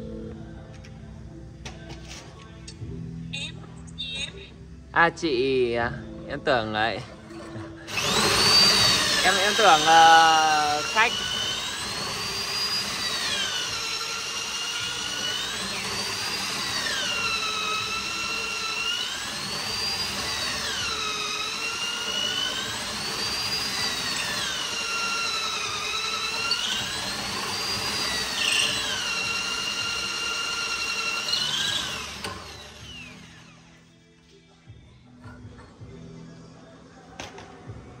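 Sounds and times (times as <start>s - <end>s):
electric drill boring into wood: 7.3s - 33.8s.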